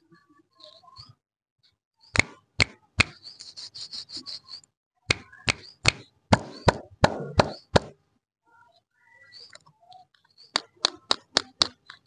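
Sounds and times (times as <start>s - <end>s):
sharp knocks: 5.1s - 8.0s.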